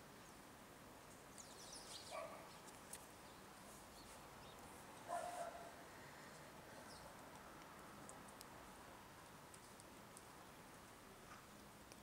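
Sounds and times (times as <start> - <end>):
small birds chirping: 0.0 - 12.0
faint dog barks: 2.1 - 2.5, 5.0 - 5.8.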